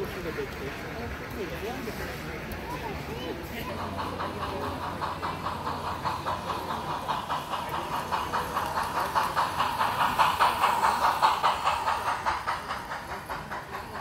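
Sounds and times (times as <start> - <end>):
toy train clattering on track: 0.0 - 14.0.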